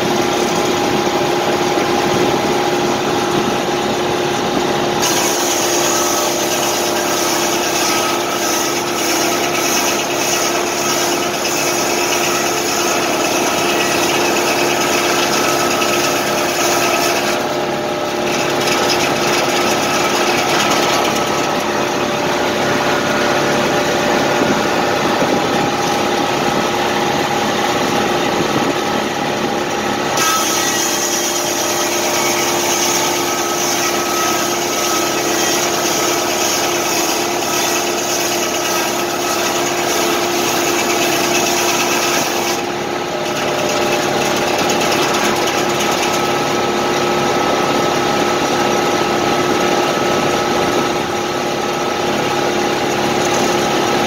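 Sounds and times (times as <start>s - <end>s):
saw blade spinning hum: 5.0s - 48.2s
tractor engine running: 17.4s - 30.1s, 42.6s - 54.0s.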